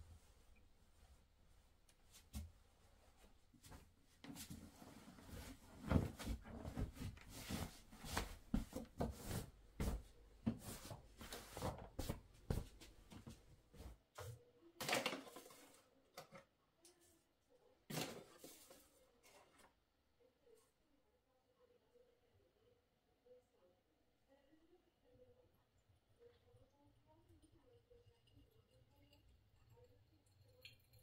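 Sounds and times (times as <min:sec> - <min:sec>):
bedding rustling: 0:00.1 - 0:13.2.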